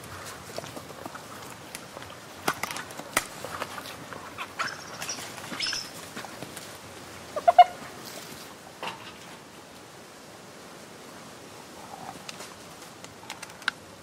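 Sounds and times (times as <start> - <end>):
cracks and scuffling of feeding: 0.0 - 9.4.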